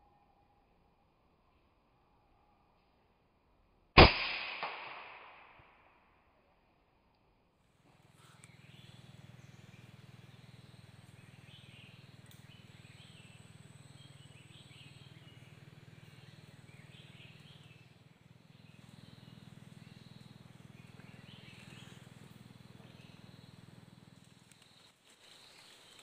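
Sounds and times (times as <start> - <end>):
steady low hum: 7.8 - 26.0
faint bird chirps: 7.9 - 26.0.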